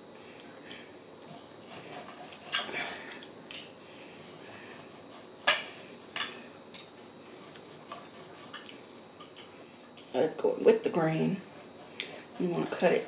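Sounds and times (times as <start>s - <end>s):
cutlery scraping a plate: 1.7s - 3.3s, 5.4s - 6.9s, 7.5s - 9.5s.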